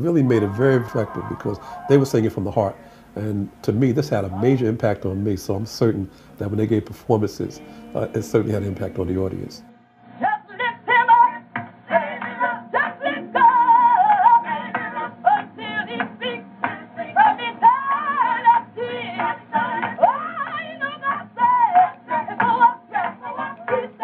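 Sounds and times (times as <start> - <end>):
high lead voice singing: 0.0 - 5.0, 7.1 - 24.0
lower accompaniment: 0.0 - 9.9.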